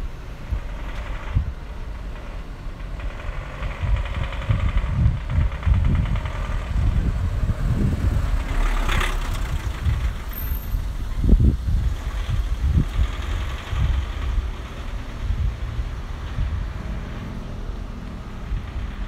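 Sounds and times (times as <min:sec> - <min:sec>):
vehicle engine running: 0:00.0 - 0:19.0
wind buffeting microphone: 0:00.0 - 0:19.0.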